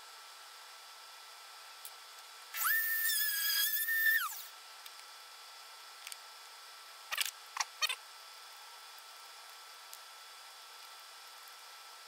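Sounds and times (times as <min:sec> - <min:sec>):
drill press motor whining: 0:02.6 - 0:04.5.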